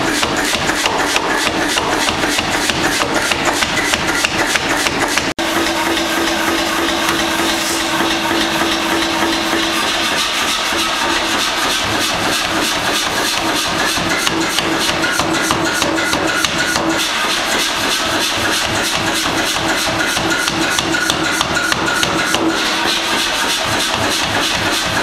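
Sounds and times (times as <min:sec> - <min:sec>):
power hammer blows: 0:00.0 - 0:25.0
steady hum: 0:05.4 - 0:12.4.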